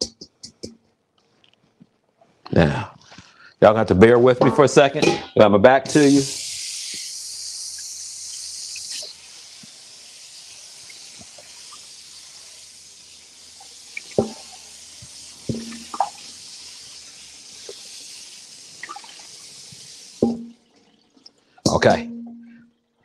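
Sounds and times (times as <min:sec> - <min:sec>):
tap running into a sink: 0:13.6 - 0:16.5, 0:18.8 - 0:22.4
knocks and clinks in sink: 0:20.2 - 0:20.6, 0:21.7 - 0:22.6.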